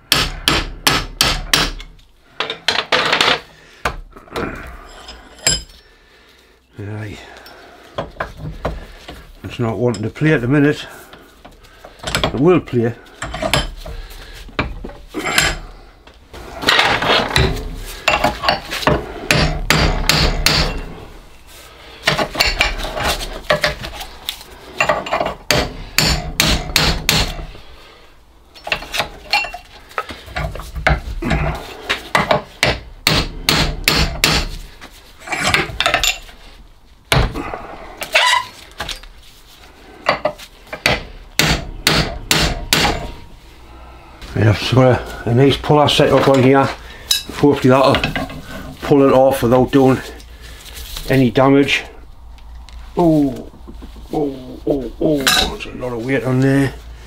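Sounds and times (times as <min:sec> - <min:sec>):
hammer striking metal: 0:00.1 - 0:01.8, 0:19.3 - 0:20.9, 0:24.8 - 0:27.4, 0:32.2 - 0:34.5, 0:40.8 - 0:43.3.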